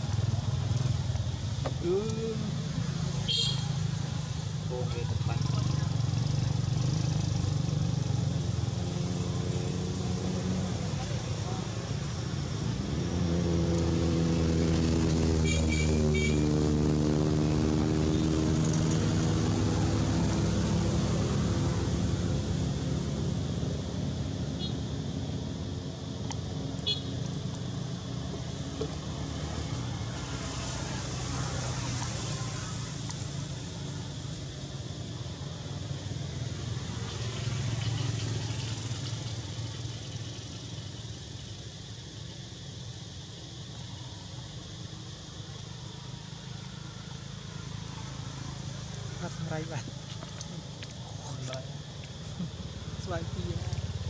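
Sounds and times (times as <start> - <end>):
vehicle engine hum passing: 0.0 - 54.0
engine running steadily: 46.8 - 54.0.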